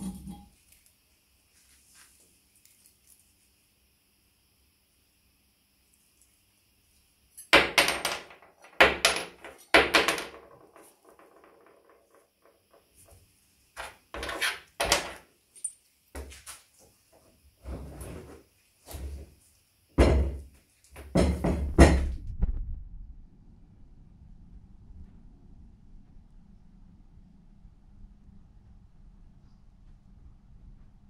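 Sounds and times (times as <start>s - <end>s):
knocks and clunks of iron and wood: 20.0s - 22.2s.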